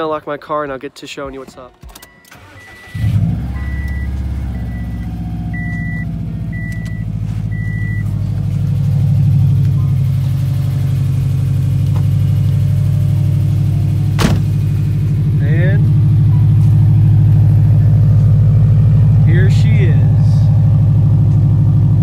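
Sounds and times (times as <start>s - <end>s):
car engine starting and idling: 0.0s - 22.0s
car warning chime beeping: 1.2s - 12.4s.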